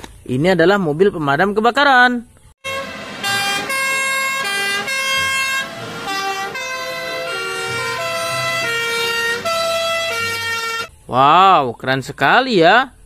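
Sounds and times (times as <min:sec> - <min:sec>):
two-tone sirens wailing: 0:02.6 - 0:10.9.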